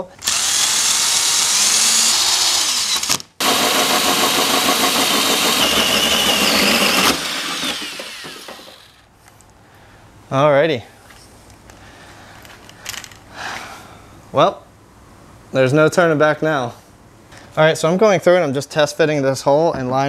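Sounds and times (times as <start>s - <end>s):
power drill cutting sheet metal: 0.2s - 9.0s.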